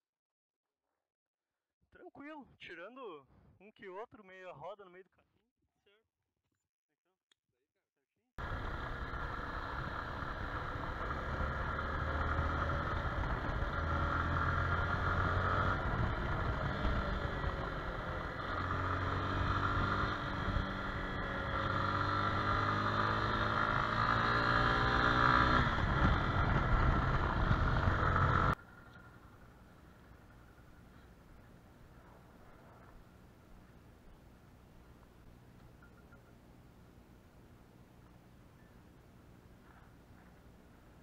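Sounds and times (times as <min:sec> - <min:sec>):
motorcycle engine revving: 0:08.4 - 0:33.8.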